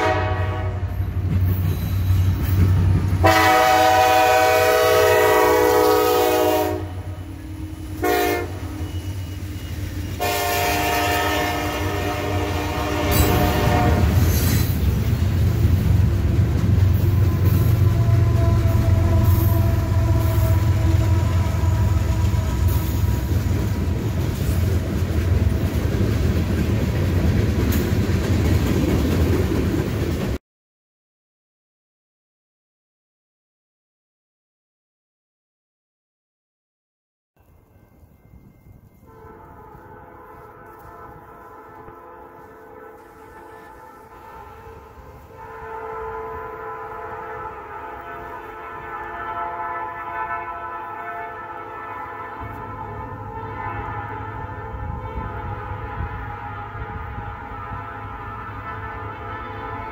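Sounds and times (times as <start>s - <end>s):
locomotive air horn blasts: 0.0s - 1.0s, 3.2s - 14.5s, 17.0s - 23.9s, 39.0s - 59.9s
train wheels on rails: 0.0s - 30.4s, 37.5s - 49.4s
locomotive engine rumble: 5.2s - 30.4s.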